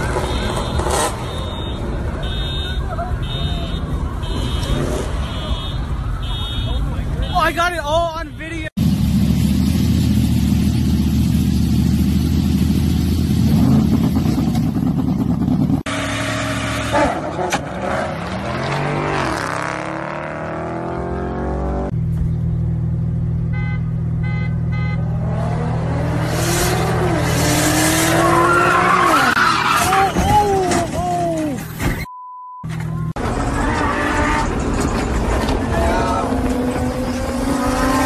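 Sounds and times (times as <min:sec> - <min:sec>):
engine revving: 0:08.8 - 0:22.0, 0:25.0 - 0:29.3, 0:33.2 - 0:38.0
car engine drone: 0:08.8 - 0:29.8, 0:32.7 - 0:38.0
quick beeps: 0:32.0 - 0:33.2.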